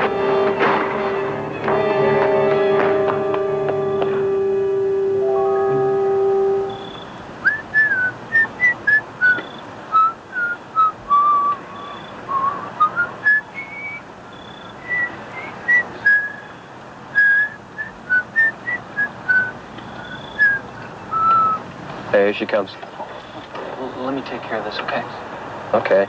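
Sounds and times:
person whistling a tune: 0:06.2 - 0:14.0, 0:14.9 - 0:16.4, 0:17.2 - 0:21.6.

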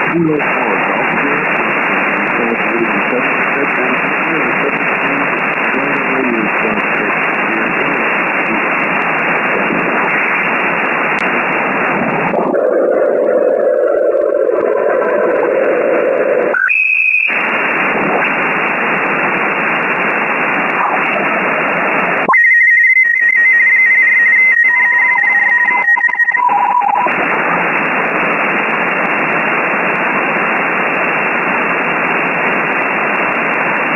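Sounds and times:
shortwave radio static hiss: 0:00.0 - 0:33.9
steady whistling tones: 0:16.6 - 0:17.3.

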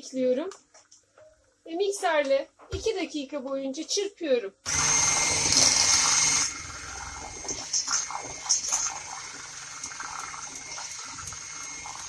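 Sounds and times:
electric hand mixer whisking: 0:04.7 - 0:12.0
wet churning of pudding: 0:05.5 - 0:12.0.

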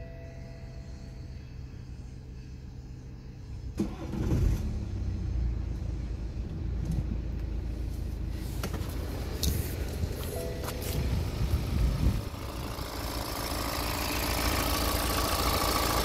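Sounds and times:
diesel engine cranking and starting: 0:00.0 - 0:16.0
diesel engine idling: 0:00.0 - 0:16.0.

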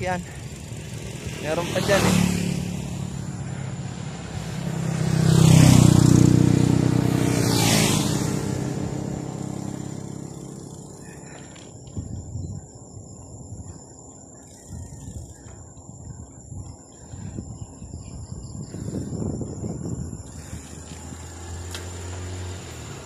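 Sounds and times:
motorcycle passing by: 0:00.0 - 0:12.2, 0:18.6 - 0:23.0.

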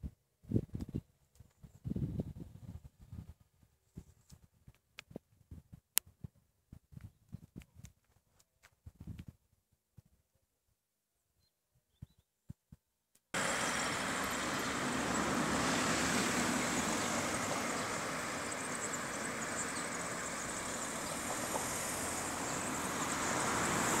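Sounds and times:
road traffic noise: 0:13.4 - 0:24.0.

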